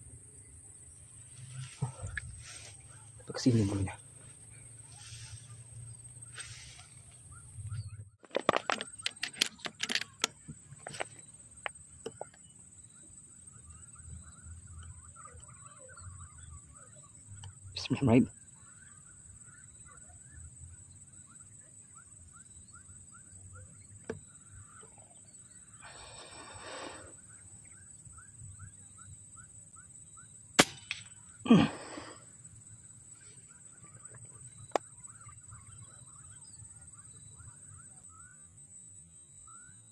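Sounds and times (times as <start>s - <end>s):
steady high-pitched whine: 0.0s - 9.0s
faint bird chirps: 0.0s - 9.4s, 10.5s - 30.5s, 31.1s - 39.9s
sharp metallic clicks and rattles: 8.2s - 12.4s
air rifle shot: 30.6s - 31.1s.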